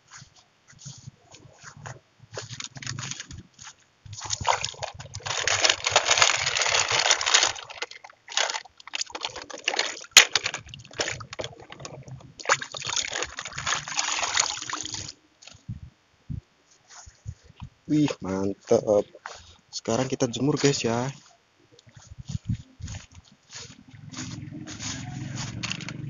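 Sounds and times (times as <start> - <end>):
water sloshing and splashing: 2.4 - 15.6.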